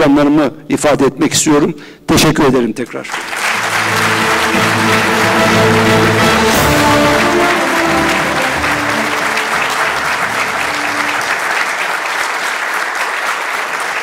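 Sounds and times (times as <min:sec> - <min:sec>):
audience applauding: 0:03.0 - 0:14.0
instrumental music: 0:03.4 - 0:11.9.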